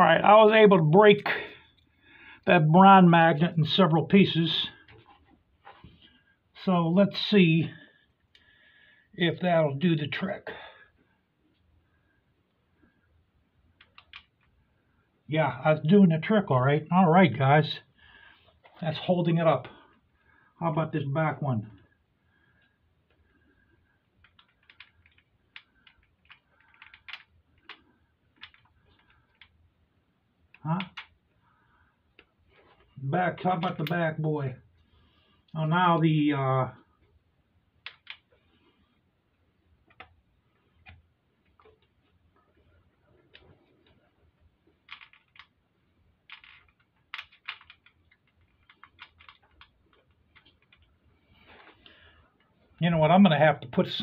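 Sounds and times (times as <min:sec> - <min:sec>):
small metal parts clicking: 0:13.8 - 0:14.4, 0:24.2 - 0:29.6, 0:37.8 - 0:38.3, 0:44.8 - 0:45.6, 0:46.2 - 0:50.9.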